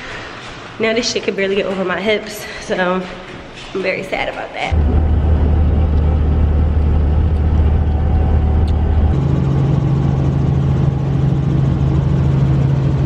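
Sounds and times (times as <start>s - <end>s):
helicopter cabin drone: 4.7s - 13.0s.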